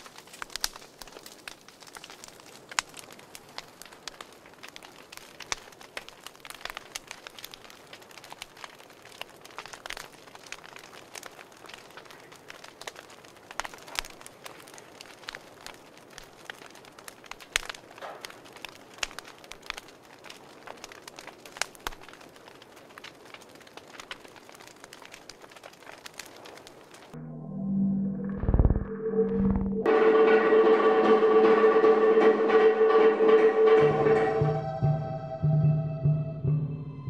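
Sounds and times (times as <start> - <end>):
fire crackling and popping: 0.0 - 27.2, 28.3 - 29.9.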